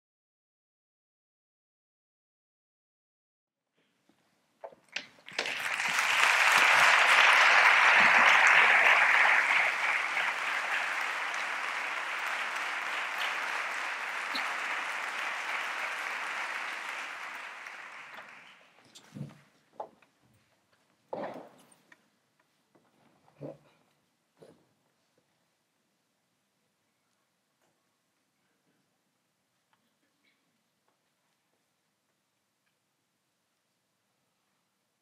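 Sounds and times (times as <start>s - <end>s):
audience applauding: 5.2s - 18.8s.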